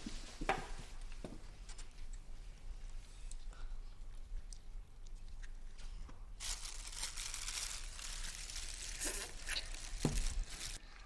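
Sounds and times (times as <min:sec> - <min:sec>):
crinkling rustling: 0:05.8 - 0:10.8.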